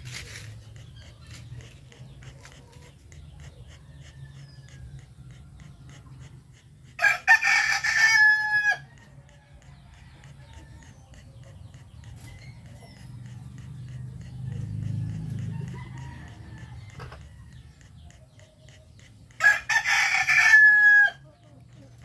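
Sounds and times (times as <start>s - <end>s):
rooster crowing: 7.0s - 9.8s, 15.1s - 17.0s, 19.4s - 21.2s.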